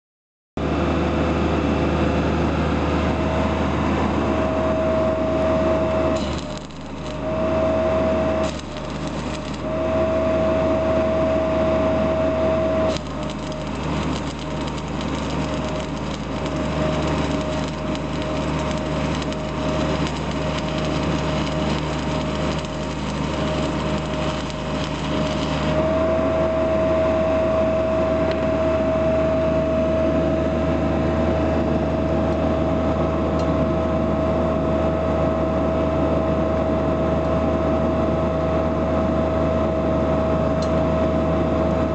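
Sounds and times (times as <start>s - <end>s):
welder generator running: 0.6s - 41.9s
welding arc crackling: 6.2s - 7.5s, 8.2s - 9.8s, 12.9s - 25.9s.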